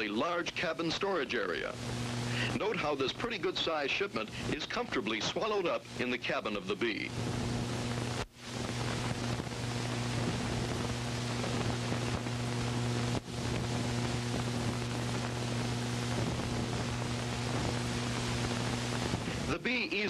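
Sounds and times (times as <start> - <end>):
film soundtrack hiss: 0.0 - 20.0
low hum: 7.1 - 19.6.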